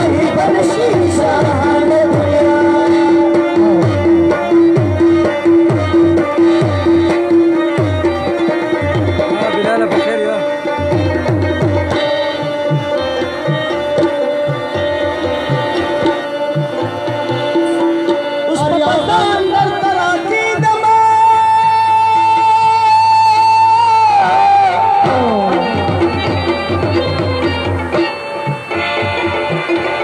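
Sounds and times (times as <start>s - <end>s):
person singing: 0.0s - 4.8s, 14.4s - 27.0s
tabla drums beating: 0.0s - 30.0s.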